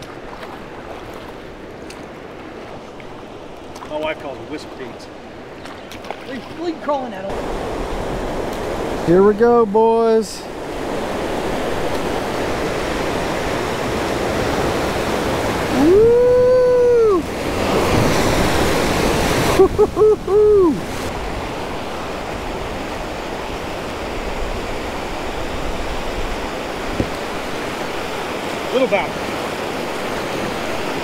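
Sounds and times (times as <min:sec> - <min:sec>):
whitewater rapids rushing: 0:06.7 - 0:31.0
person whooping: 0:15.7 - 0:17.4, 0:19.6 - 0:20.9.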